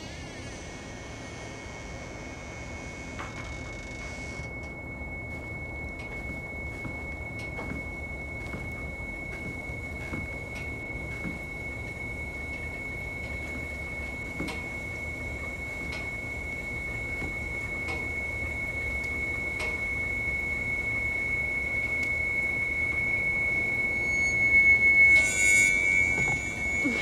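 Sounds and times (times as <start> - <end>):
sustained high tone: 23.0 - 27.0.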